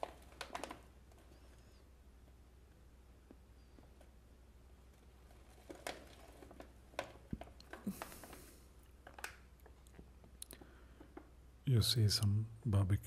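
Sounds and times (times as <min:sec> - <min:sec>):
low room hum: 0:00.0 - 0:13.0
plastic snack bag crackling: 0:05.1 - 0:10.0.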